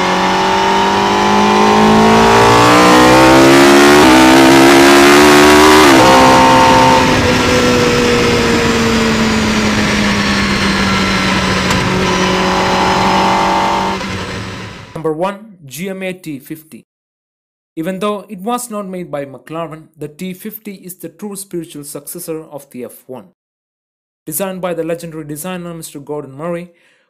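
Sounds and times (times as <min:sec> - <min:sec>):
car engine revving: 0:00.0 - 0:15.0.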